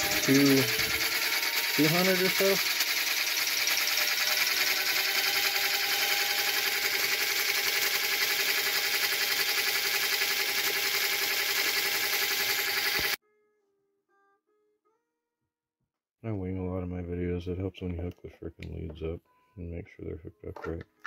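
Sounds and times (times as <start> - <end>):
electric motor whining and humming: 0.0 - 13.2.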